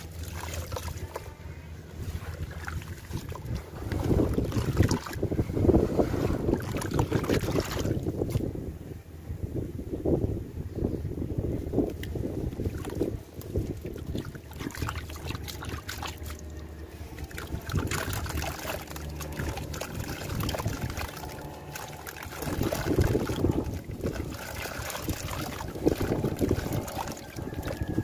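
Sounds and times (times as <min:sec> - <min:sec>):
water trickling and splashing: 0:00.0 - 0:01.4, 0:02.0 - 0:05.4, 0:06.0 - 0:08.4, 0:11.9 - 0:28.0.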